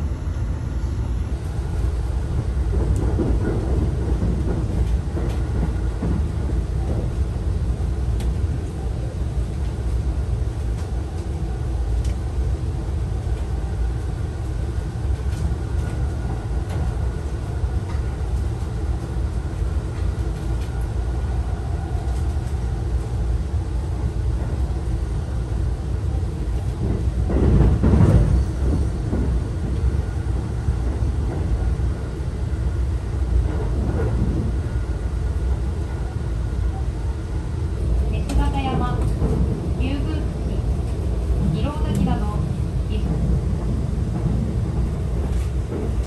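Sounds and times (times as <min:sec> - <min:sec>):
train rushing: 0:00.0 - 0:46.0
train wheels rumbling on rail: 0:00.0 - 0:46.0.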